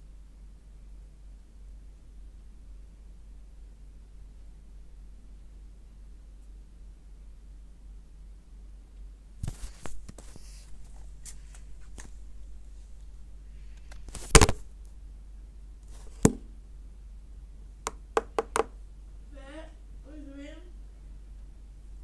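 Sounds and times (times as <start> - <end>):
low steady hum: 0.0 - 22.0
fingers tapping a tablet: 17.9 - 18.8.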